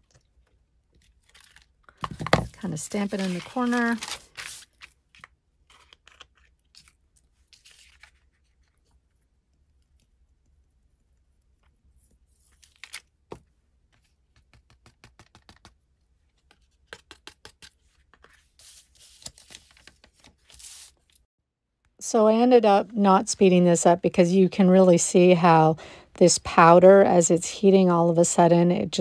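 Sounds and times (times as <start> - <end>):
paper rustling: 1.2 - 8.9, 16.3 - 21.2.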